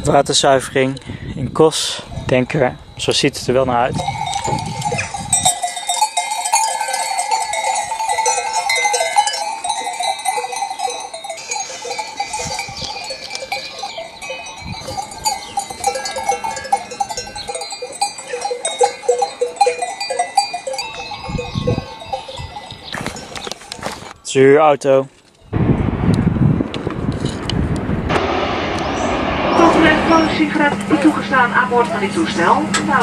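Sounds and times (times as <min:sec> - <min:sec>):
goat bells clanking: 0:03.8 - 0:24.2.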